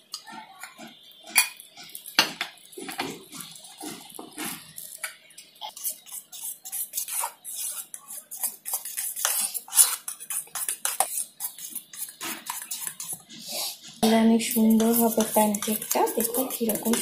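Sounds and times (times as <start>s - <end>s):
spoon scraping steel bowl: 5.7s - 17.0s.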